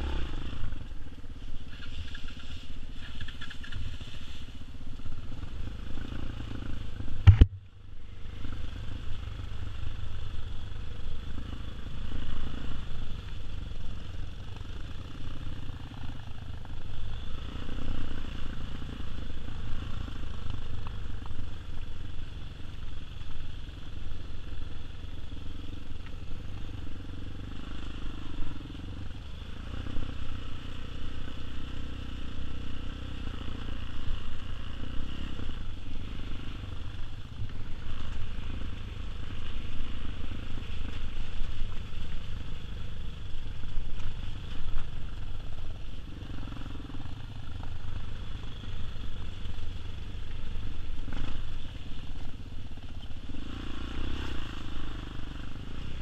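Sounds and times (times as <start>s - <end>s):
dirt bike engine running: 0.0s - 56.0s
sharp knock: 7.2s - 7.6s.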